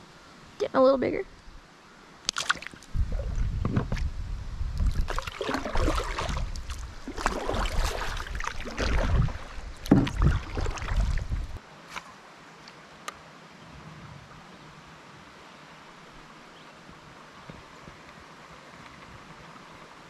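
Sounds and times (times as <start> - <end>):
low rumble on microphone: 2.9 - 11.6
water splashing against kayak: 4.8 - 11.6.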